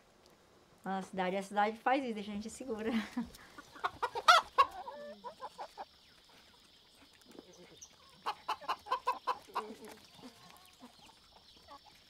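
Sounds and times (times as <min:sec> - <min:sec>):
chickens clucking: 0:02.7 - 0:12.0.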